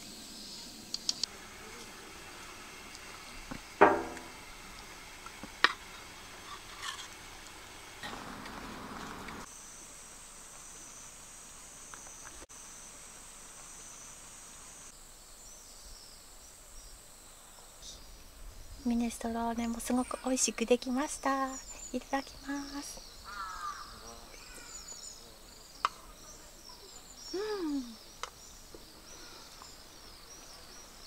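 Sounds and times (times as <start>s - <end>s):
high-pitched hiss: 0.0s - 31.0s
tableware knocks: 3.8s - 4.3s.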